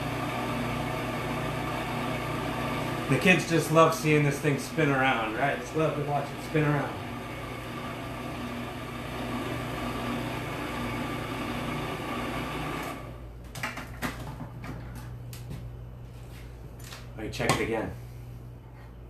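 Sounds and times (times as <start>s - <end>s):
food processor grinding seeds: 0.0s - 13.2s.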